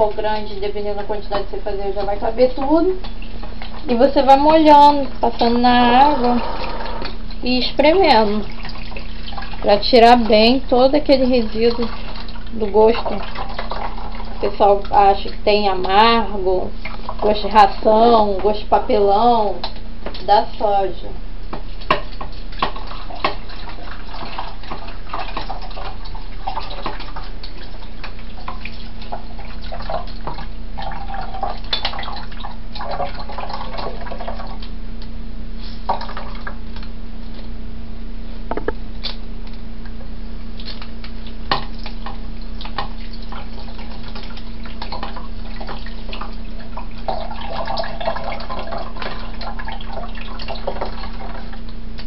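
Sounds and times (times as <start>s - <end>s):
water running into sink: 0.0s - 20.8s, 21.6s - 34.8s, 40.7s - 51.8s
wet squelching by hand: 40.6s - 48.2s.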